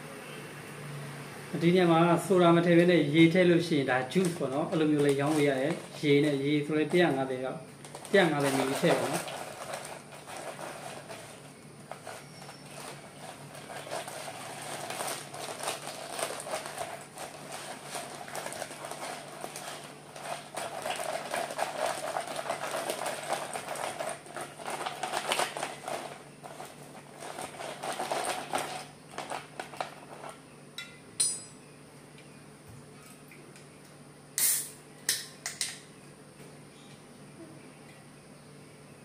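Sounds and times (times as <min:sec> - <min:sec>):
ice cubes clinking in plastic cup: 0:04.1 - 0:07.2, 0:07.9 - 0:30.3.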